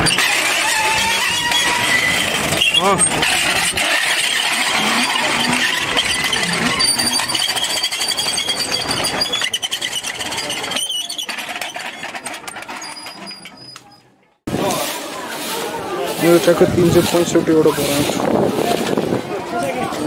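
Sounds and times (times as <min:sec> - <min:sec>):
metal prayer wheels squeaking: 0:00.0 - 0:14.2.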